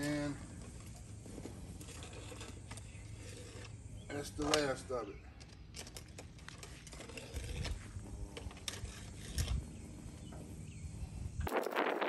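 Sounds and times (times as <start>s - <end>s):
brush tapping and scraping in vent: 0.0s - 4.8s.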